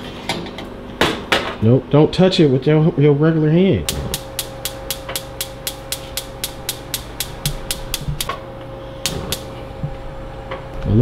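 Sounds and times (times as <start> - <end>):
faint steady hum: 0.3 - 11.0
gas stove igniter clicking: 3.8 - 8.4, 9.0 - 9.6.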